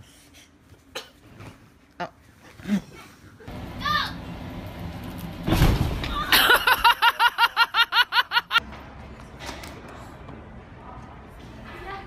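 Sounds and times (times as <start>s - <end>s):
heavy thud on bounce house: 5.4s - 6.1s.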